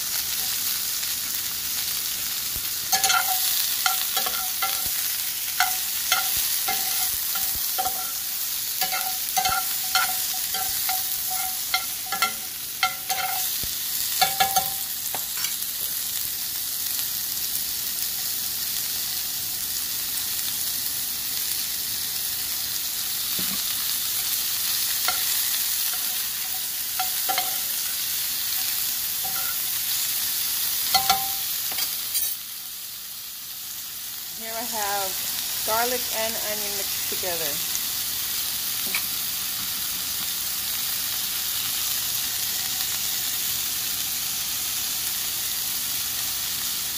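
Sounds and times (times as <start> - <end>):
vegetables sizzling in a skillet: 0.0 - 46.9
metal spatula scraping a pan: 2.9 - 13.6, 25.0 - 29.7.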